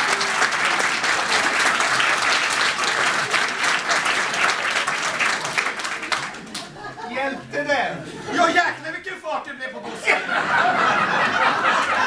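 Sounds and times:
audience applauding: 0:00.0 - 0:07.0, 0:10.6 - 0:12.0.

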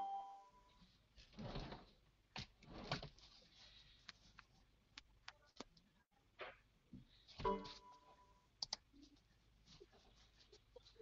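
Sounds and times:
short chime: 0:00.0 - 0:00.7
soft rustling: 0:08.9 - 0:11.0.

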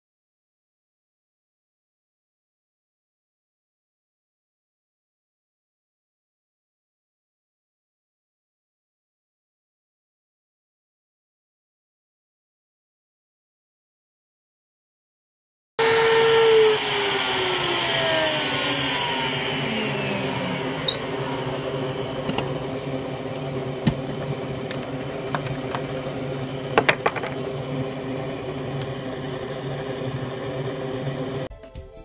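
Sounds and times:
machine hum: 0:15.8 - 0:31.5
router spindle winding down: 0:15.8 - 0:31.5.

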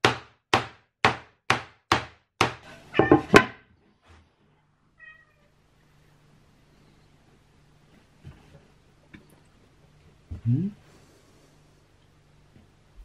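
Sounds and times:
knocks on wooden cabinet: 0:00.0 - 0:03.6
cat meowing: 0:02.9 - 0:03.4, 0:05.0 - 0:05.5.

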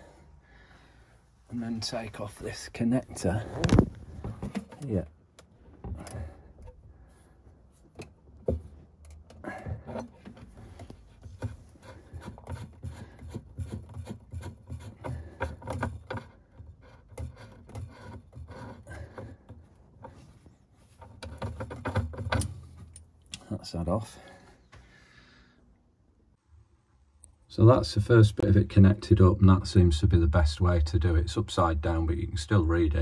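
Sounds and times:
dull bumps of handling: 0:03.4 - 0:05.0.

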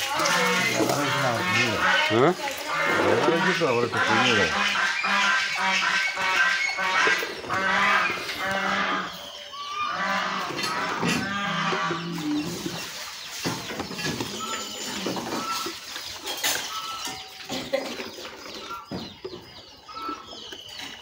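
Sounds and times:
high bird chirps: 0:04.9 - 0:21.0.

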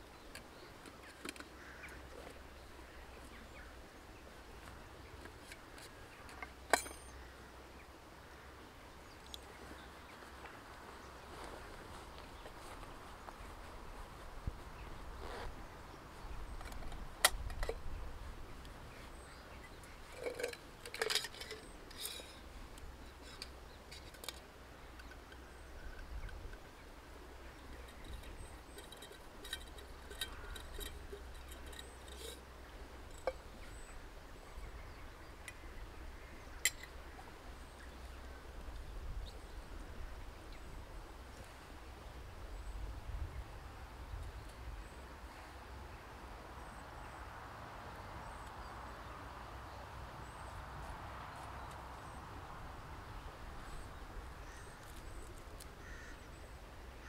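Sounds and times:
metal camp gear clinking: 0:05.2 - 0:07.2, 0:20.0 - 0:24.4, 0:27.6 - 0:33.7.

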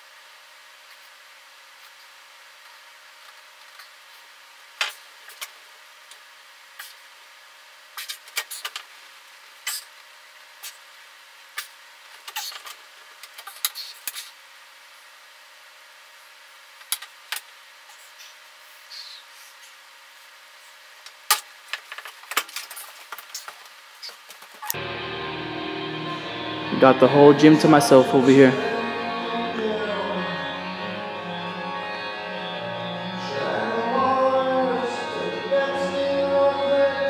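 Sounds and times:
faint steady hum: 0:00.0 - 0:37.0.

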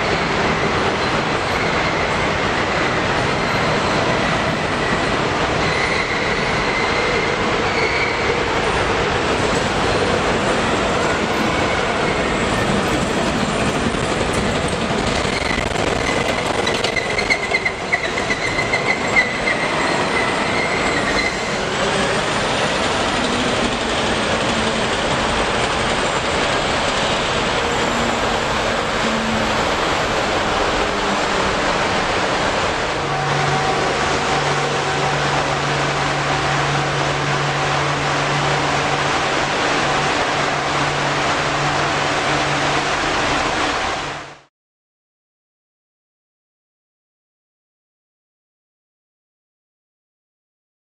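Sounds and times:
high squeal: 0:01.0 - 0:08.4, 0:15.2 - 0:22.2.

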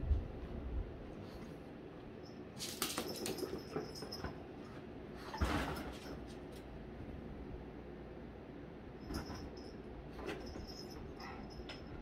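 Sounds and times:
dog claws clicking on floor: 0:02.6 - 0:04.3.

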